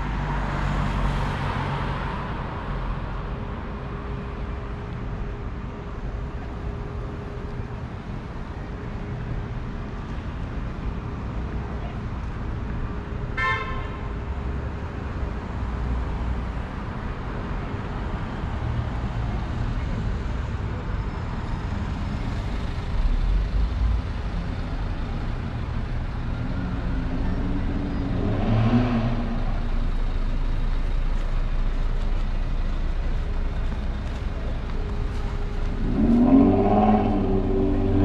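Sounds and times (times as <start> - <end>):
cars driving past: 0.0 - 4.9, 14.5 - 38.0
vehicle passing close: 35.2 - 38.0.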